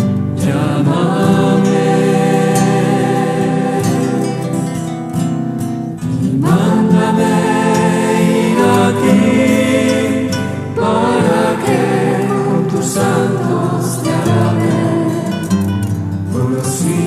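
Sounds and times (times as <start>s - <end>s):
choir singing a christian song: 0.0s - 5.2s, 6.0s - 17.0s
sustained accompaniment: 6.3s - 17.0s.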